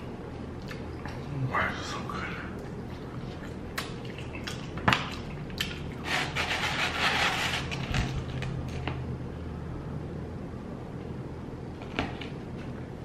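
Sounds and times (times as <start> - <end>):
wet squishy food sound: 2.5 - 6.1.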